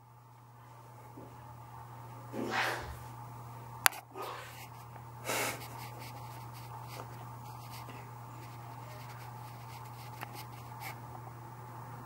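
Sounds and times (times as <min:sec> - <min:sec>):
low room hum: 0:00.0 - 0:12.0
puff of breath: 0:05.2 - 0:05.7.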